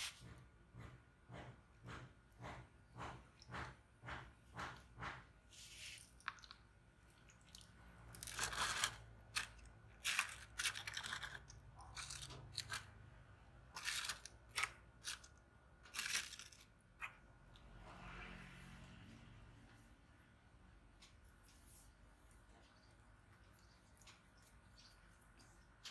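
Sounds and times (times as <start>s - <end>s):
plastic tubs crinkling: 5.6s - 13.0s, 13.7s - 17.1s.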